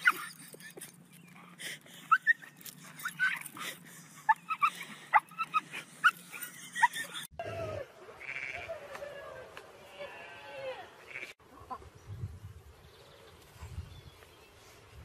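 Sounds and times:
dog whining and yipping: 2.1s - 3.6s.

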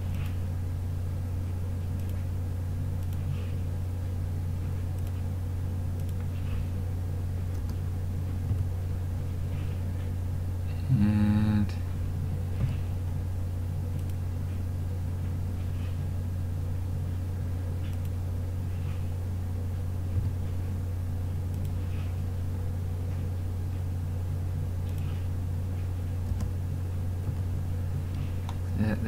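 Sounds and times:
steady low hum: 0.0s - 29.0s
faint mouse clicks: 1.9s - 2.2s, 3.0s - 3.3s, 6.0s - 6.3s, 13.9s - 14.2s, 17.8s - 18.2s.

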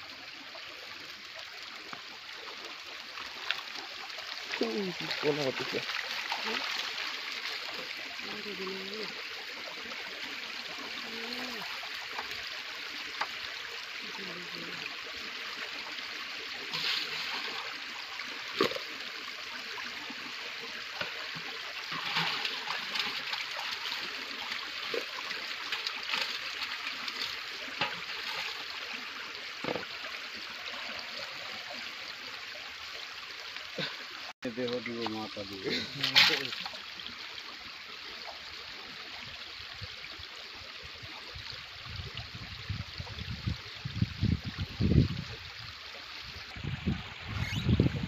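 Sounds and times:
water splashes: 0.0s - 48.0s
water streaming off a net: 1.4s - 32.7s, 34.9s - 38.2s.

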